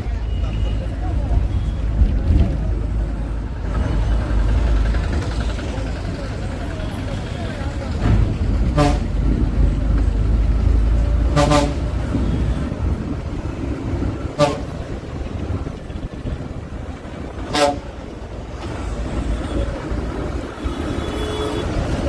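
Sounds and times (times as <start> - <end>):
bus rumbling: 0.0 - 22.0
city traffic: 0.0 - 22.0
vehicle horn toots: 8.7 - 9.1, 11.3 - 12.7, 20.6 - 22.0.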